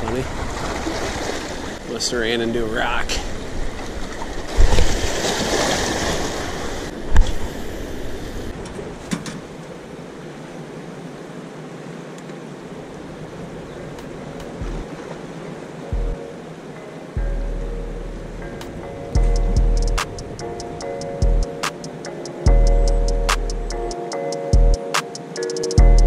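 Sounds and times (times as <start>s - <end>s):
water rushing in spillway: 0.0s - 14.2s
heavy thumps: 14.6s - 14.9s, 19.2s - 20.3s.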